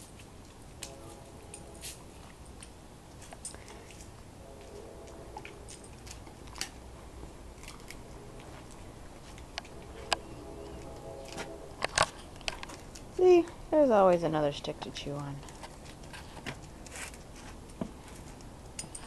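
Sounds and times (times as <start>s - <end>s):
dog chewing on wooden stick: 1.9s - 13.6s.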